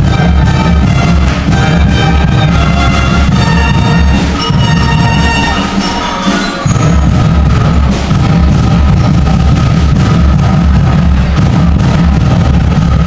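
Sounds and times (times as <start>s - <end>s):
mallet percussion: 0.0s - 9.3s
school band playing: 0.0s - 13.0s
steady low beat: 0.0s - 13.0s.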